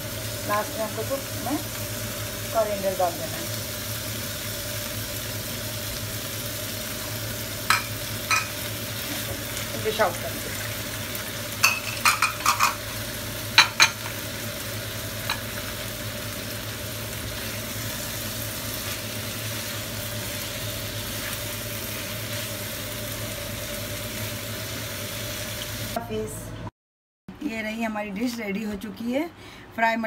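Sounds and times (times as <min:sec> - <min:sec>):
meat sizzling in a frying pan: 0:00.0 - 0:26.0.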